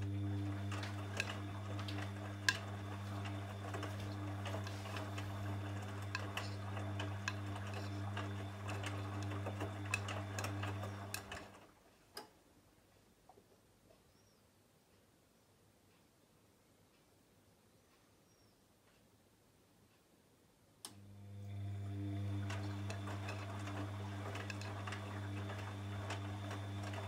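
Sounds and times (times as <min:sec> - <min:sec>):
washing machine motor hum: 0:00.0 - 0:12.0, 0:20.9 - 0:27.0
wet laundry tumbling clicks: 0:00.0 - 0:12.3, 0:22.2 - 0:27.0.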